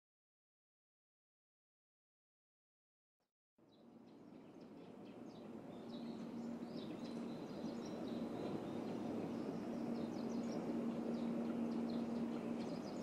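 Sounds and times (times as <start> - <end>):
low hum: 4.0 - 13.0
birds chirping: 4.1 - 13.0.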